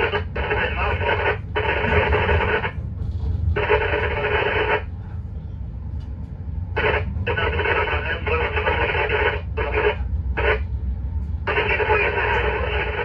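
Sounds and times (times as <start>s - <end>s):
radio transmission bursts: 0.0s - 2.8s, 3.6s - 4.9s, 6.8s - 10.6s, 11.5s - 13.0s
moving train rumble: 0.0s - 13.0s.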